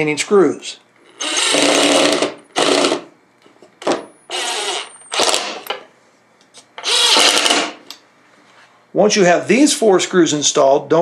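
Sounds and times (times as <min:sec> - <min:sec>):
impact driver hammering screws: 0:01.2 - 0:03.0, 0:03.8 - 0:05.7, 0:06.8 - 0:07.8.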